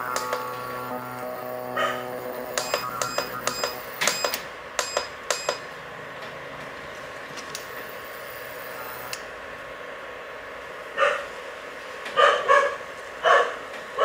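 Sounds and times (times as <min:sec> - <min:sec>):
thin high tone: 0:00.0 - 0:05.6
faint steady hum: 0:00.0 - 0:12.0.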